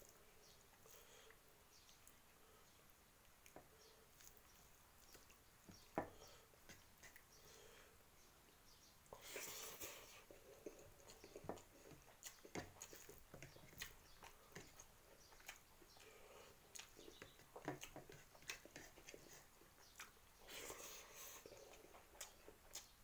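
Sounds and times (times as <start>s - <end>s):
rustling food: 0.0s - 23.0s
lip smacks and chewing: 3.2s - 6.0s, 9.1s - 23.0s.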